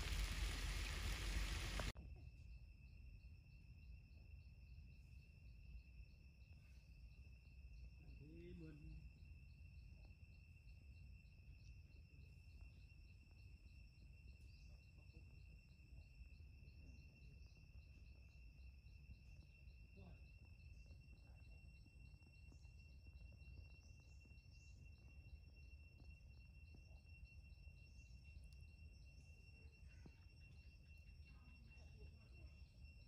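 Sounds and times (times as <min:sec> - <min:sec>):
low rumble: 0:00.0 - 0:01.9
high-pitched insect trills: 0:00.0 - 0:33.0
insect chirp: 0:00.0 - 0:33.0.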